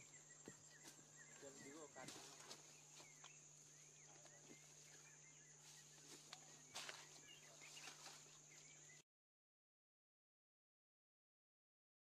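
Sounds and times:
bird chirps: 0.0s - 9.0s.

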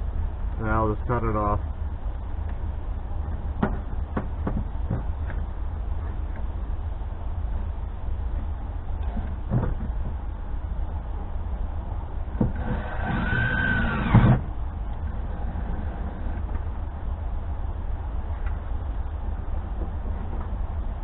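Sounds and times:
thump: 9.5s - 10.0s
cordless drill driving screw into metal: 12.6s - 14.4s.

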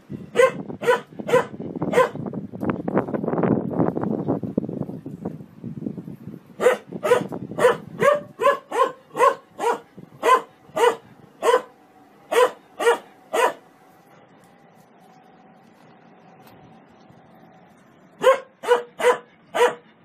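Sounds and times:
dog barking: 0.3s - 2.2s, 6.6s - 11.7s, 12.3s - 13.6s, 18.2s - 19.9s.

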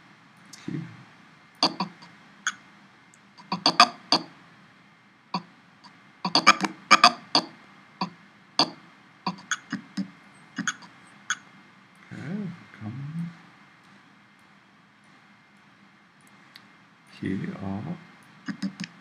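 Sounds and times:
computer mouse clicks: 9.3s - 10.9s, 18.5s - 19.0s.

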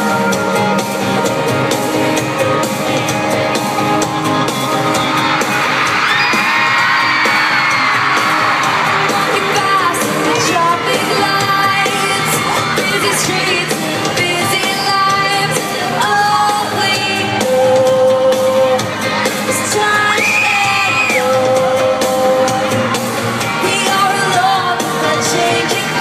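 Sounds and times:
crowd screaming and whooping: 0.0s - 26.0s
live pop-rock band: 0.0s - 26.0s
person singing: 7.5s - 26.0s.

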